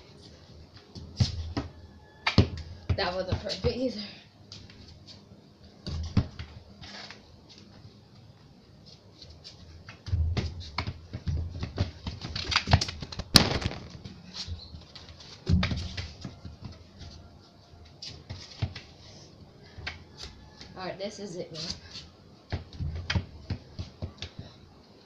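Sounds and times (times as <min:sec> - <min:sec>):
feet thumping on a football: 0:05.9 - 0:06.6, 0:09.8 - 0:14.6, 0:15.4 - 0:17.0, 0:22.5 - 0:24.6
feet scuffing concrete floor: 0:08.8 - 0:19.0.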